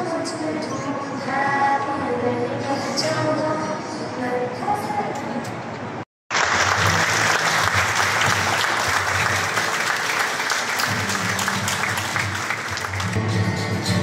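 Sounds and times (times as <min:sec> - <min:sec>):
large audience clapping: 0:06.3 - 0:13.3.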